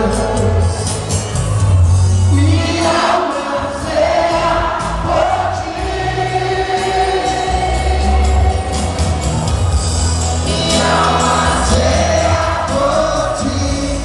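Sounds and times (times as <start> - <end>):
instruments playing along: 0.0 - 14.0
congregation singing: 2.3 - 9.4, 10.4 - 14.0.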